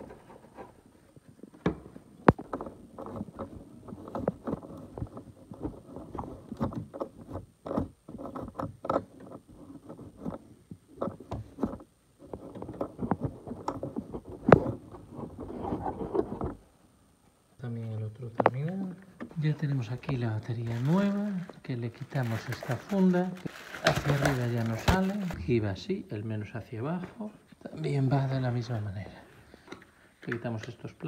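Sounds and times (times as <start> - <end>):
sharp clicks and knocks: 1.4 - 16.6.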